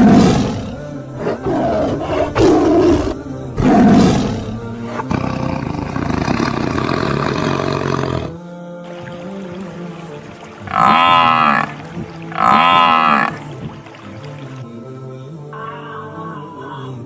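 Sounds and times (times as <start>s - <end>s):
lion roaring: 0.0s - 8.3s, 12.3s - 13.4s.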